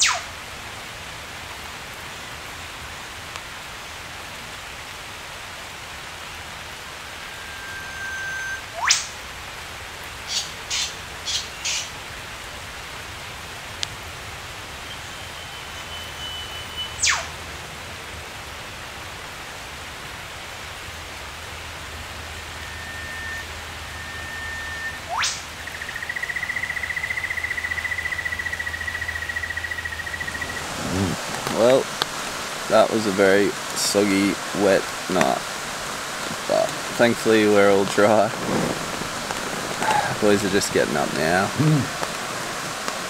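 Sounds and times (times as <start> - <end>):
rain hissing: 0.0 - 43.0
bird whistling with fast sweep: 7.2 - 9.1, 15.0 - 17.3, 22.4 - 31.1
birds chirping: 14.8 - 17.4, 22.0 - 42.1
warbling trilled bird note: 22.4 - 26.3.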